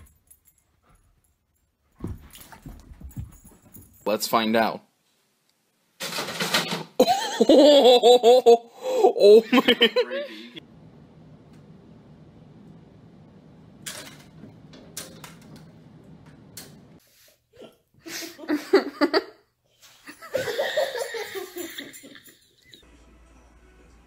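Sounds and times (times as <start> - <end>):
person laughing: 7.0 - 10.6, 17.6 - 19.4, 20.2 - 22.6
low hum: 10.6 - 17.0.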